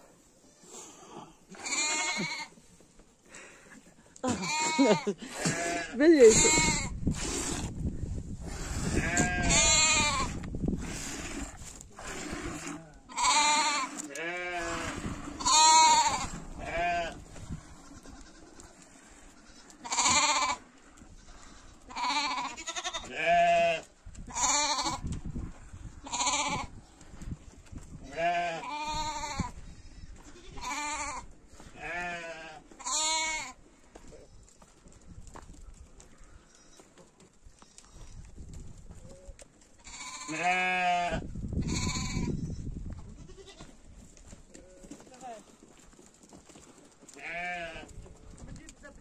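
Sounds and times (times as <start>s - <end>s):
goats bleating: 1.5s - 2.6s, 4.2s - 6.9s, 8.8s - 10.4s, 12.8s - 25.0s, 26.0s - 26.7s, 28.0s - 33.6s, 39.8s - 42.4s, 43.1s - 43.8s, 47.1s - 48.0s.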